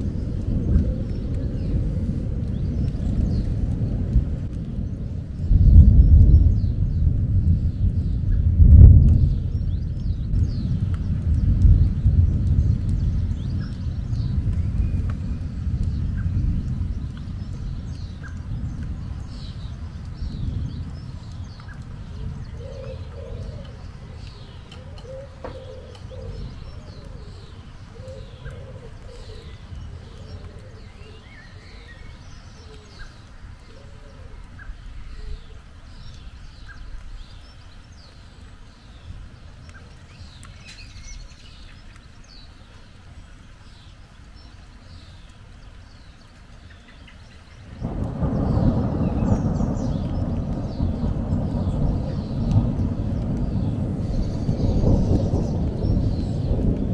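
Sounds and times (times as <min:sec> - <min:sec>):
thunder rumbling: 0:00.0 - 0:40.9, 0:47.6 - 0:56.9
small birds chirping: 0:00.0 - 0:56.9
pigeon cooing: 0:24.8 - 0:27.3.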